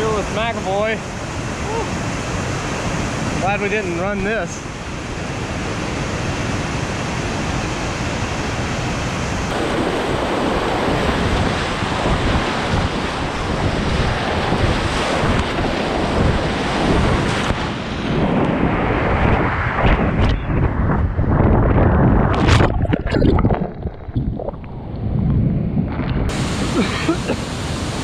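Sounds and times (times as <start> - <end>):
kayak splashing in whitewater: 22.2 - 24.9
river rapids rushing: 26.3 - 28.0.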